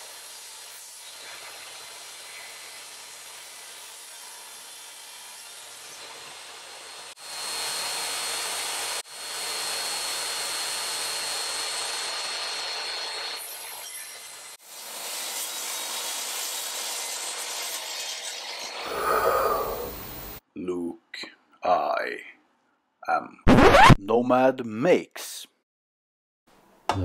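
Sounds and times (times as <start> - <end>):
dust extraction hose: 0.0 - 4.7.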